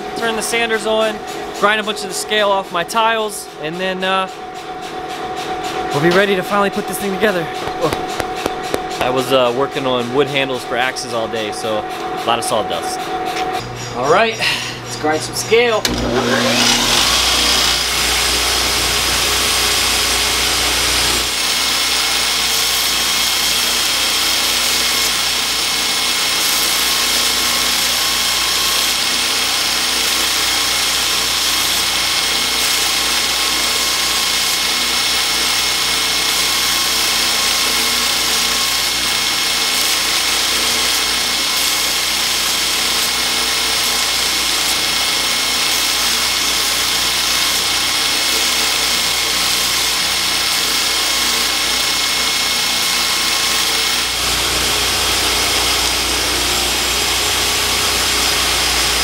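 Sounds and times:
belt grinder grinding steel: 15.6 - 59.0.

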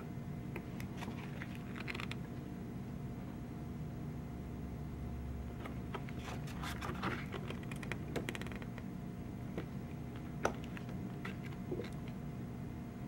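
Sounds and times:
photobook pages turning: 0.9 - 2.2, 5.9 - 8.7.

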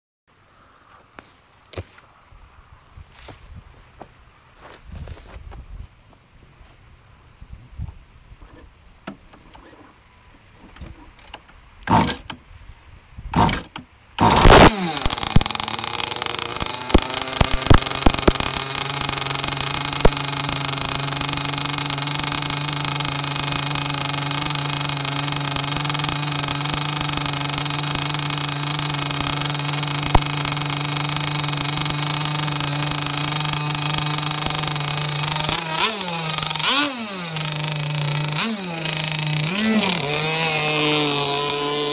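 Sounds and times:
rc boat motor running: 11.9 - 12.3, 13.4 - 41.9.

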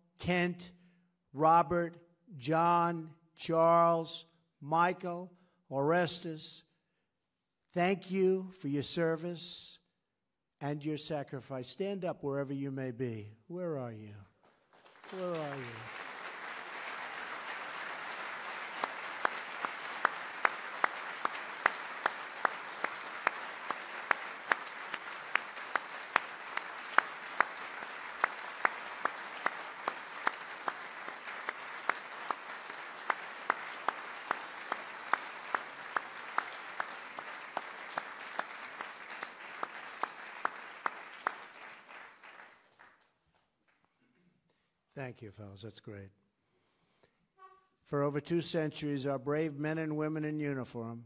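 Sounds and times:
loud close clap: 14.4 - 43.0
audience applauding: 14.4 - 43.1.

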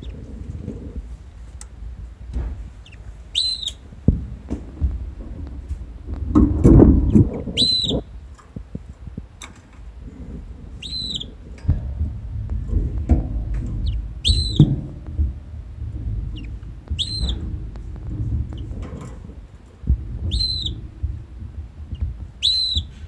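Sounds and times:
low rumble: 0.0 - 23.0
canary call notes: 2.8 - 3.8, 7.6 - 8.1, 10.8 - 11.3, 13.8 - 14.7, 16.4 - 17.4, 20.3 - 20.8, 22.4 - 23.0.

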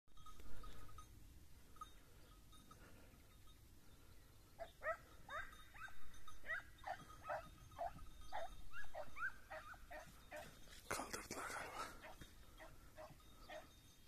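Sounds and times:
hunting dog baying: 4.6 - 10.8, 11.8 - 13.8.

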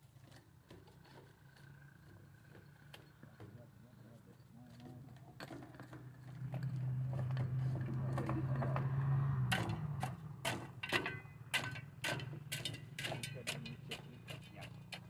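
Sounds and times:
tool knocking and scraping stony soil: 4.7 - 15.0.

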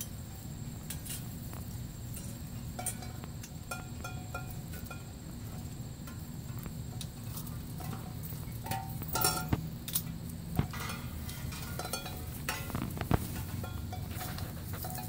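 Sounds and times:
metal kitchenware clanking: 7.3 - 15.0.

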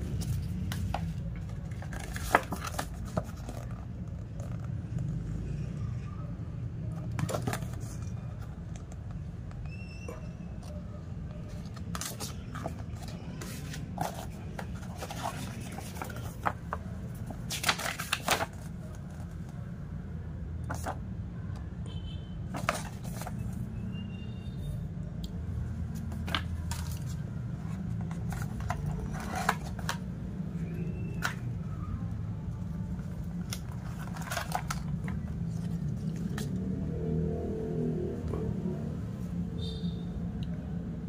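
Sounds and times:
paper rustling and scraping: 0.0 - 4.7, 7.2 - 8.6, 11.5 - 19.5, 20.7 - 21.0, 22.5 - 23.7, 25.9 - 31.7, 32.9 - 36.8.

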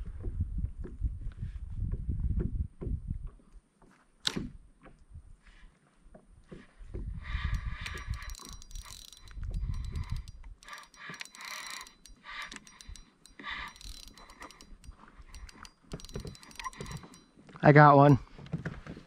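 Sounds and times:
fishing reel gears whirring: 7.2 - 17.5.

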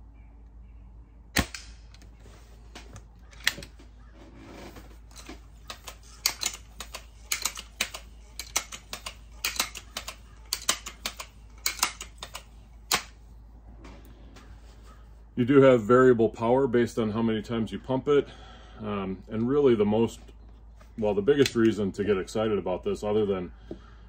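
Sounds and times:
air rifle shot crack: 1.3 - 2.0
rifle handling clicks: 2.8 - 3.8, 5.1 - 13.2.

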